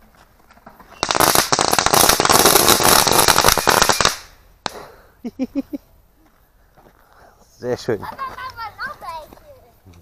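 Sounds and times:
firecrackers cracking: 0.7s - 4.9s.

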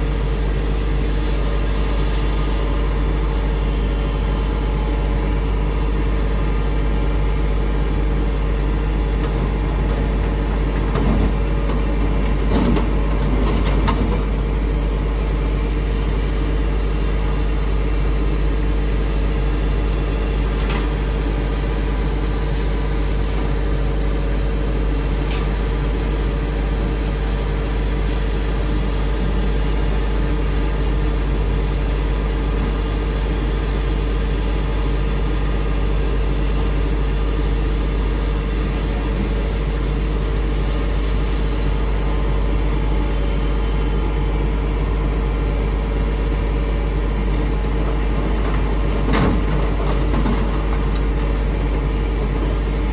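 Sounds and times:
excavator diesel engine running: 0.0s - 52.9s.

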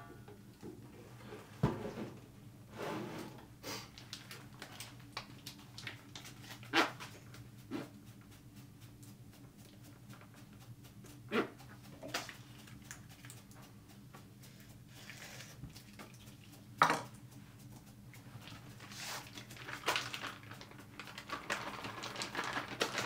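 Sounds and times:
rustling and scraping: 0.8s - 3.5s, 18.3s - 23.0s.

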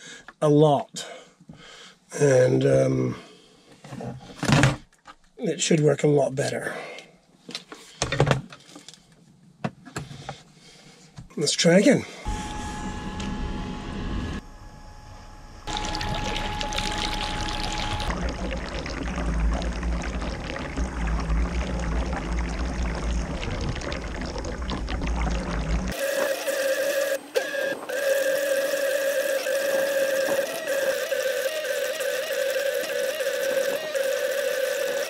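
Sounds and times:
electric motor whine: 12.3s - 18.3s, 25.9s - 35.0s.

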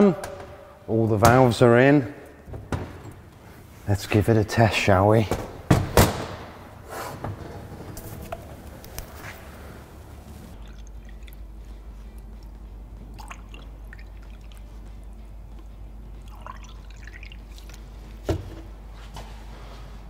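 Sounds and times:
water trickling and dripping: 10.6s - 11.5s, 12.2s - 14.9s, 16.2s - 17.8s.

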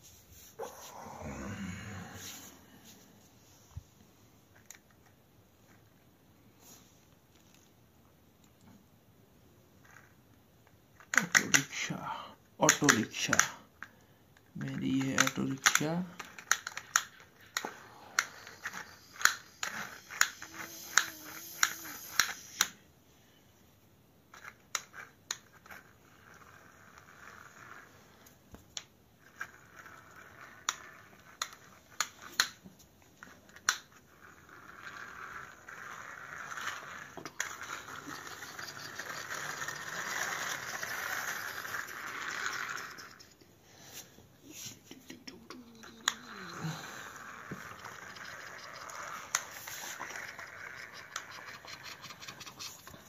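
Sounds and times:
plastic toy wheels clicking: 11.0s - 11.8s, 12.6s - 22.8s, 24.3s - 27.9s, 28.8s - 32.6s, 33.2s - 43.4s, 45.1s - 53.0s
rolling whir: 33.2s - 43.4s, 45.8s - 53.0s.

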